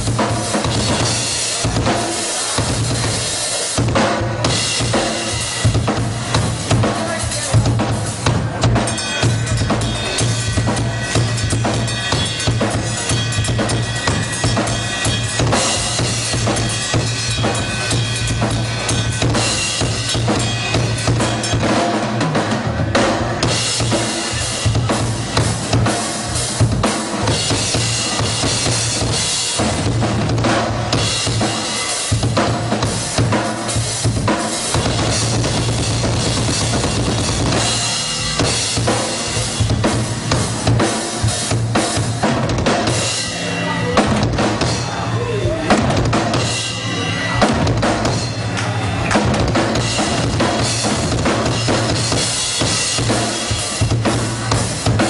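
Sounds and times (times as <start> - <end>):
rock drum solo on drum kit: 0.0 - 55.0
ringing cymbals: 7.1 - 21.9, 30.9 - 42.1, 42.9 - 45.7.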